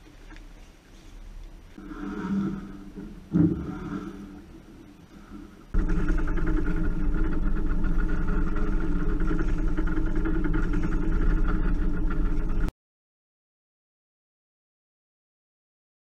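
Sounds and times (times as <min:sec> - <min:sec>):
boat engine running: 0:01.7 - 0:12.7.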